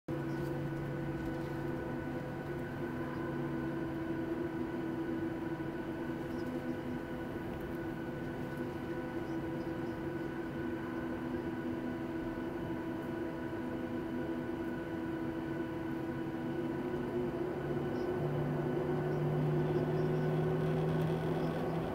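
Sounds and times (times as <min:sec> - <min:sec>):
jet engines idling: 0:00.1 - 0:21.9.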